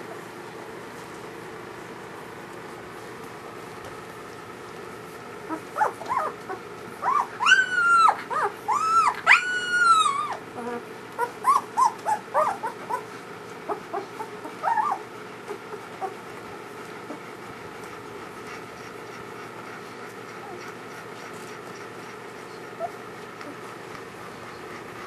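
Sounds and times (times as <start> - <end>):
puppies whimpering and squealing: 5.4 - 25.0.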